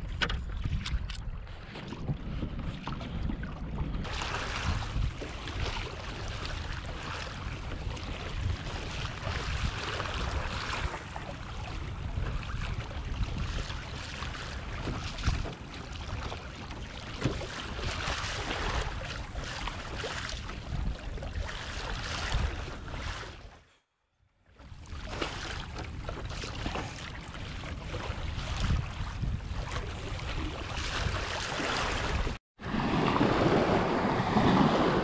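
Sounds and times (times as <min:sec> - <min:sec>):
wind rumbling on microphone: 0:00.0 - 0:23.5, 0:24.6 - 0:35.0
water lapping against kayak hull: 0:00.0 - 0:35.0.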